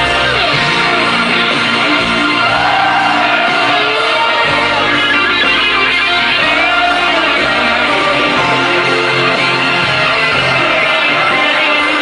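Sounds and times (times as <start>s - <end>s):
electric guitar bending notes: 0.0s - 12.0s
rock band playing a slow ballad: 0.0s - 12.0s.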